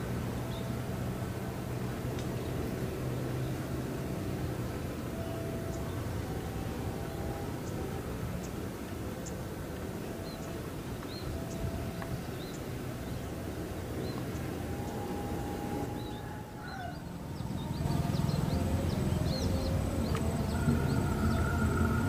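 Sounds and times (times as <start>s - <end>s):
diesel locomotive approaching: 0.0s - 22.0s
steady low rumble: 0.0s - 22.0s
small birds chirping: 10.1s - 22.0s.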